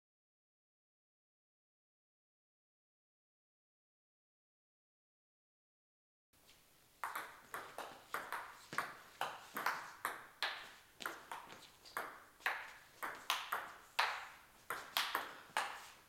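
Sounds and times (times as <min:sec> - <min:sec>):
table tennis ball clicking: 0:07.0 - 0:15.8.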